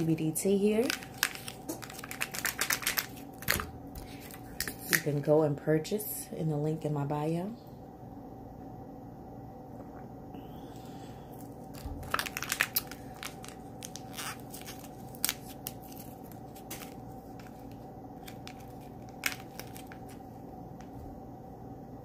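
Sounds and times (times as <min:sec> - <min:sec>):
plastic bottle and packet crinkling: 0:00.0 - 0:05.1, 0:11.3 - 0:20.4.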